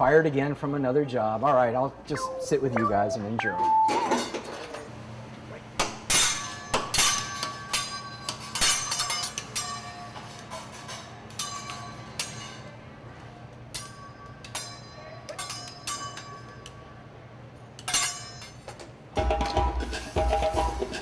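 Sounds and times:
metal spatula clanging on griddle: 6.1 - 12.7, 17.8 - 18.7.

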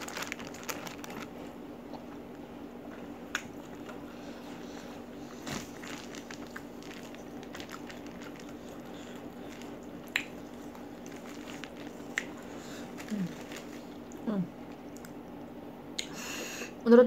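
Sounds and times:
chewing: 5.5 - 14.2
fingers squishing through food: 5.6 - 12.6.

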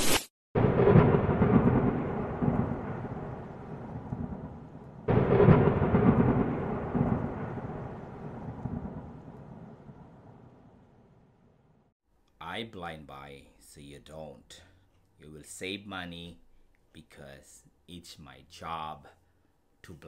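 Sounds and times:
deep rumbling booms: 0.6 - 10.9.

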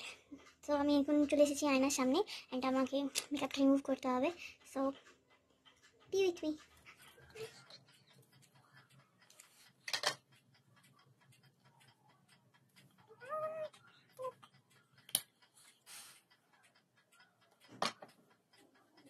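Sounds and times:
pet animal whining: 5.1 - 19.0
sharp clicks: 6.6 - 19.0.

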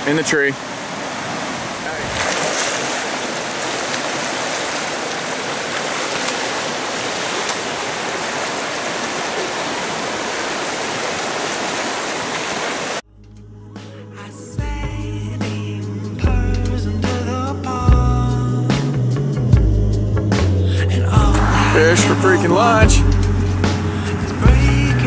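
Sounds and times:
river rushing over rocks: 0.0 - 13.0, 21.2 - 23.0
music with low bass: 13.1 - 25.0.

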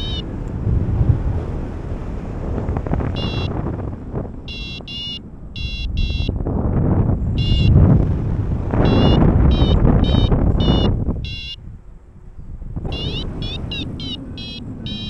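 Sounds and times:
short high beeps: 0.0 - 0.2, 3.2 - 3.5, 4.5 - 6.4, 7.4 - 7.8, 8.8 - 11.6, 12.9 - 15.0
wind on microphone: 0.0 - 15.0.

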